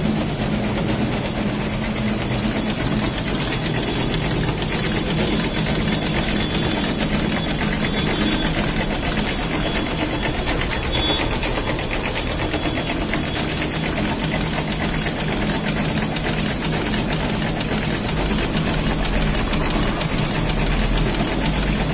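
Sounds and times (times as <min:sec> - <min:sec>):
low machine drone: 0:00.0 - 0:13.4
knitting machine clattering: 0:00.0 - 0:21.9.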